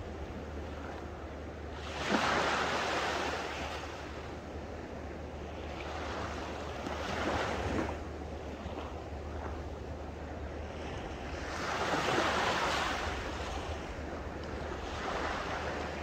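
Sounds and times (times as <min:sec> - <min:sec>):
small waves washing on beach: 0:01.7 - 0:04.2, 0:05.4 - 0:09.8, 0:10.5 - 0:16.0.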